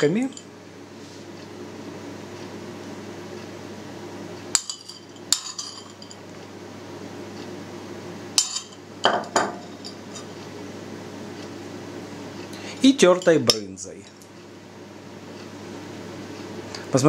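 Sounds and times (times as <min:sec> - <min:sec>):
metal spoon clinking on plates: 0:04.6 - 0:06.2.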